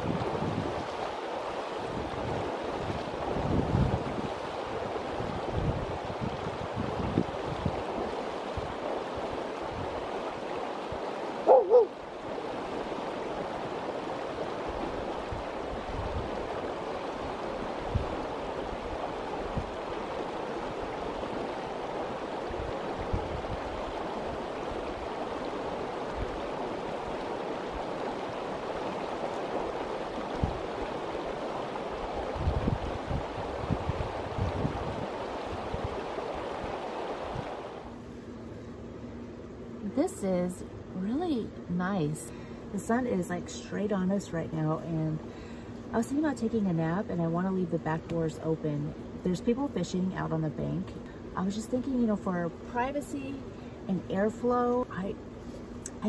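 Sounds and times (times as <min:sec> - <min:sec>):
wind buffeting microphone: 0:00.0 - 0:01.1, 0:01.8 - 0:10.2, 0:13.4 - 0:27.2, 0:27.8 - 0:37.7.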